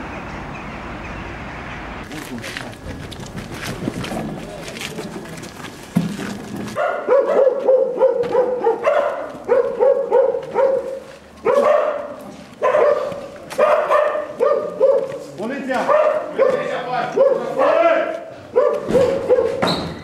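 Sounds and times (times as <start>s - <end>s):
dog barking: 6.8s - 15.2s, 15.8s - 17.8s, 18.5s - 19.6s.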